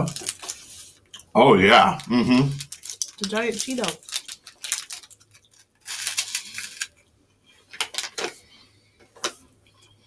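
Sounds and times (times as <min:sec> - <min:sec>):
foil wrapper crinkling: 0:00.0 - 0:01.1, 0:01.8 - 0:07.0
crunching and chewing snack: 0:01.9 - 0:07.0.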